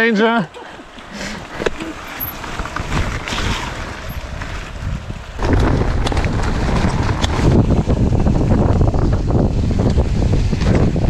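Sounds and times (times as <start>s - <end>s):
bike rattles and clicks: 0.5s - 11.0s
bike tyre noise: 0.5s - 11.0s
wind on microphone: 1.5s - 11.0s.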